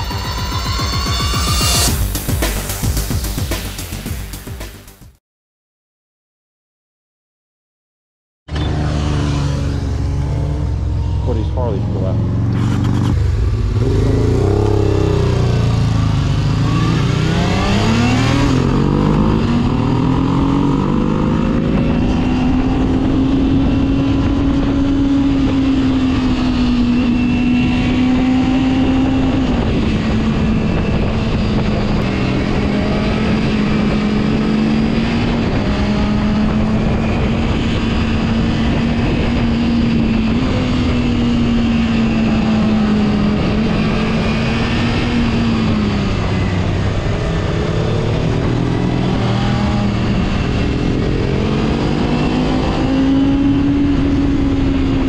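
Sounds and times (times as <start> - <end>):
motorcycle engine revving: 8.5 - 55.0
wind rushing: 12.2 - 55.0.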